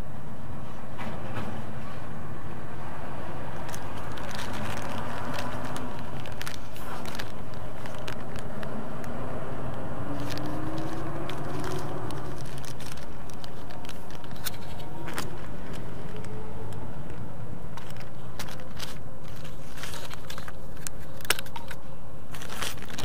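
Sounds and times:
plastic bag crinkling: 3.5 - 8.7, 10.1 - 16.7, 17.7 - 23.0.

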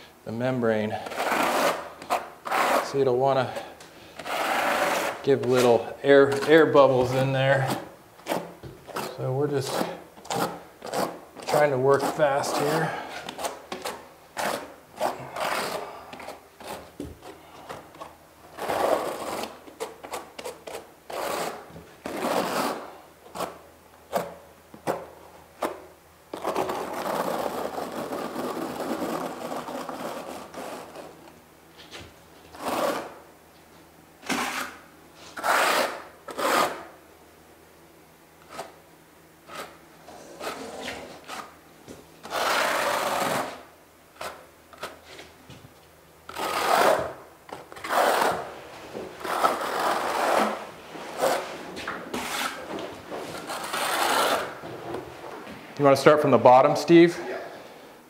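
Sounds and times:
trowel scraping mortar: 1.0 - 3.0, 4.2 - 16.9, 18.0 - 23.6, 34.3 - 36.9, 42.2 - 44.4, 46.3 - 48.5, 49.2 - 51.5, 52.1 - 52.7, 53.4 - 54.6.

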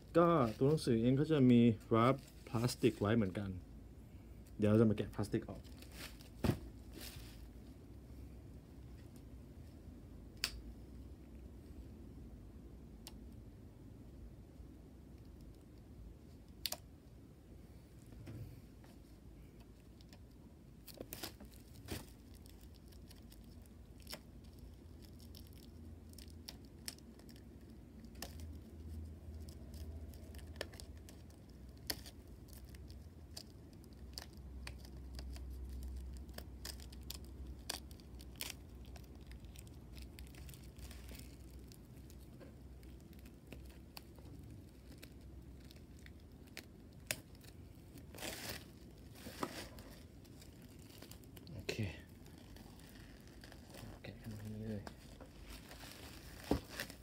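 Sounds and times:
plastic wrap crinkling: 5.2 - 7.6, 19.8 - 57.0.

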